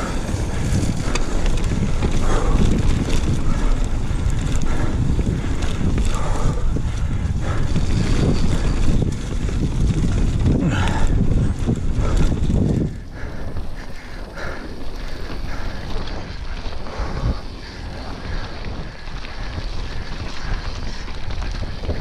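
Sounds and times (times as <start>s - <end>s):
bike tyres on dirt: 0.0s - 22.0s
wind on microphone: 0.0s - 22.0s.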